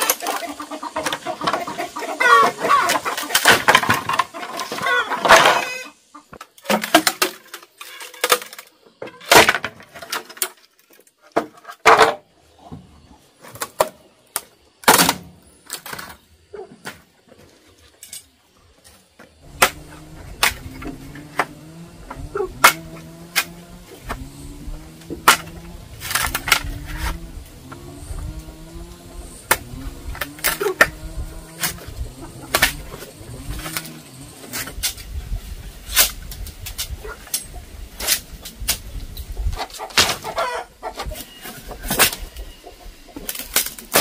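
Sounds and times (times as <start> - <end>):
bamboo stems cracking and knocking: 0.0 - 12.2, 17.9 - 35.2, 41.8 - 42.3, 43.2 - 44.0
low drone rising in steps: 19.4 - 34.5.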